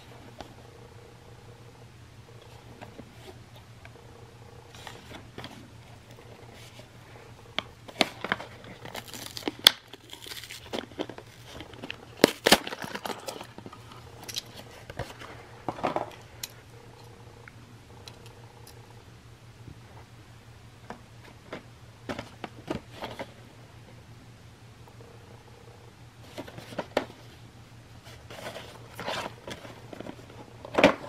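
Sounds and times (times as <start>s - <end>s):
plastic packaging crinkling and tearing: 7.9s - 15.2s.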